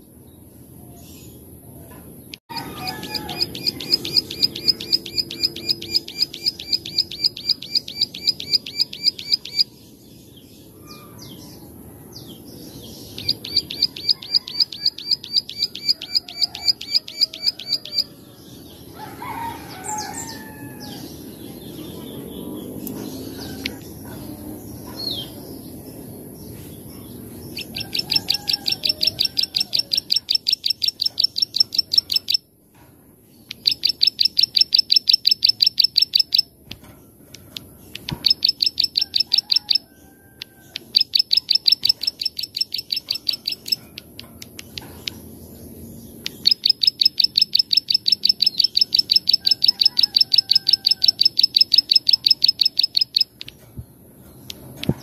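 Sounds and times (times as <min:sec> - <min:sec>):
bird singing rapid bright notes: 0:02.5 - 0:11.6, 0:12.6 - 0:18.8, 0:26.4 - 0:32.4, 0:33.4 - 0:39.8, 0:40.7 - 0:55.0.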